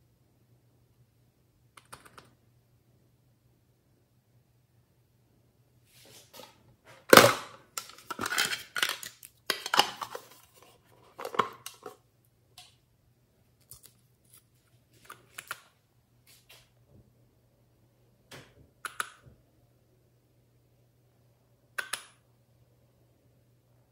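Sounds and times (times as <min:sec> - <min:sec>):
plastic containers clicking and rattling: 0:07.0 - 0:12.0.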